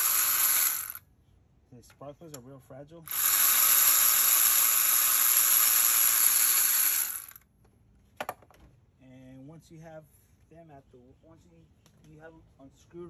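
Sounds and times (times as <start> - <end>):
electric ratchet whirring: 0.0 - 1.0, 3.1 - 7.4.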